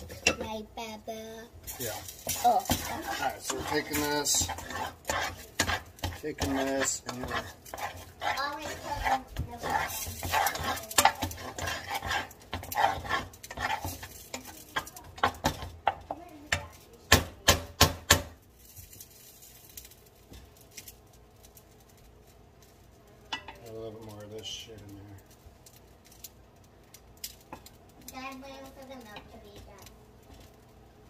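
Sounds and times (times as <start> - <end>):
spatula scraping a pot: 1.6 - 16.8.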